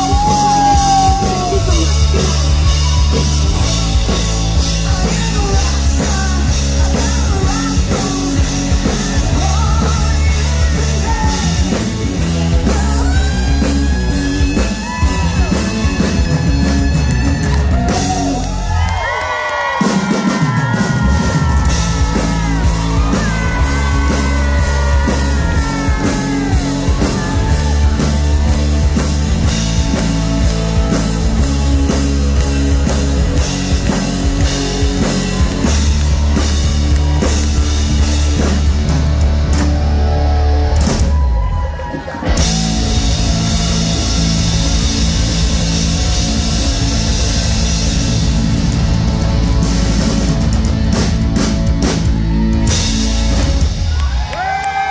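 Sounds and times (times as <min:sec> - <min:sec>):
person singing: 0:00.0 - 0:18.5, 0:20.4 - 0:28.6
bass guitar: 0:00.0 - 0:54.9
drum kit: 0:00.0 - 0:54.9.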